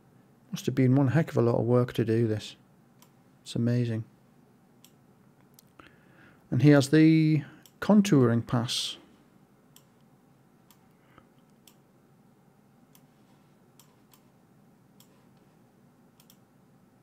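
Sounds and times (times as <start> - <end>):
faint computer mouse clicks: 15.0 - 15.4, 16.2 - 16.4.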